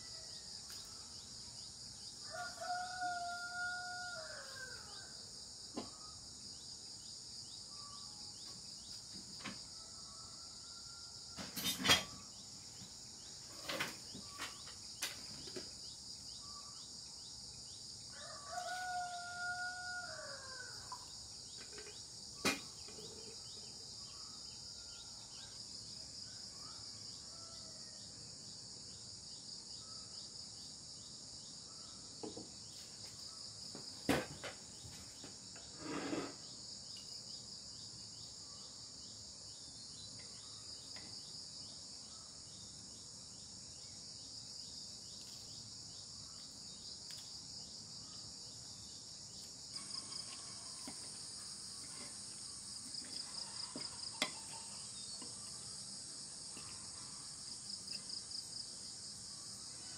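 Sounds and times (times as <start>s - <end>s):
shrill insect chorus: 0.0s - 59.9s
short scrape: 35.7s - 36.5s.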